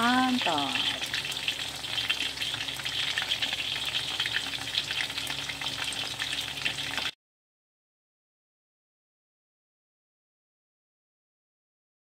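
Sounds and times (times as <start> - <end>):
chicken sizzling in hot oil: 0.0 - 7.2.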